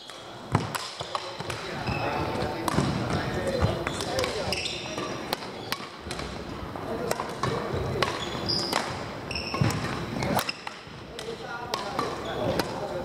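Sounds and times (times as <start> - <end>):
racket hitting shuttlecock: 0.1 - 1.7, 2.3 - 12.9
shoe squeaks: 1.0 - 2.6, 3.5 - 5.9, 8.0 - 10.7, 12.2 - 12.6.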